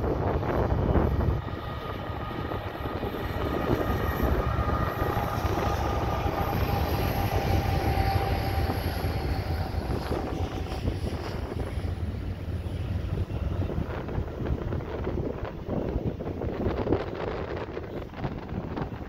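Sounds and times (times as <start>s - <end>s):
locomotive rumble: 0.0s - 19.0s
wind buffeting microphone: 0.0s - 19.0s.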